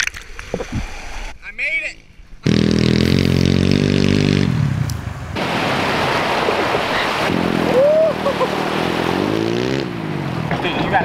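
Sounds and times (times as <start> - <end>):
motorbike engine running hard: 2.5 - 4.9.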